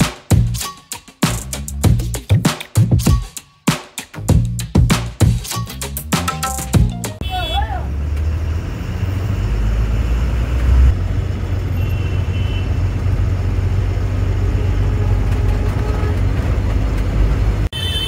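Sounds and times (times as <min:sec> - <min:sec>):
bus engine rumbling: 0:06.8 - 0:18.0
road noise: 0:07.1 - 0:18.0.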